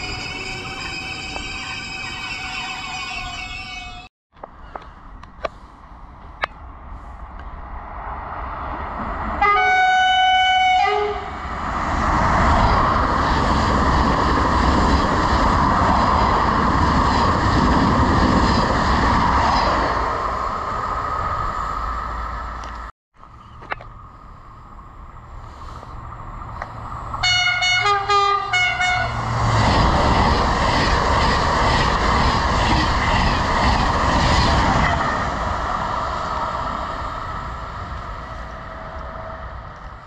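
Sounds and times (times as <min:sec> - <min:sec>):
train rumbling past: 0:00.0 - 0:04.9, 0:05.6 - 0:40.0
train horn: 0:09.4 - 0:11.4, 0:27.2 - 0:29.2.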